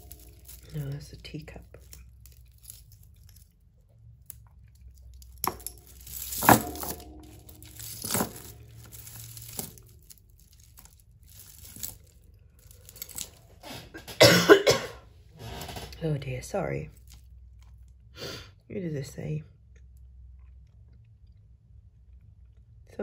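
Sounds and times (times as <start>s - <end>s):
jewellery chains rustling and rattling: 0.0s - 13.7s.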